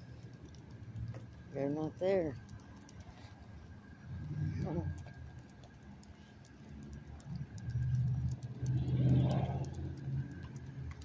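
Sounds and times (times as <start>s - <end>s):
car driving past: 7.6s - 10.6s.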